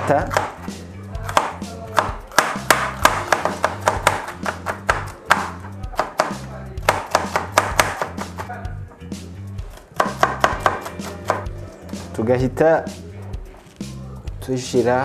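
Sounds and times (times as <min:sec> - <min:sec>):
knife chopping on cutting board: 0:00.0 - 0:08.4, 0:09.7 - 0:12.1
background music with bass: 0:00.0 - 0:15.0.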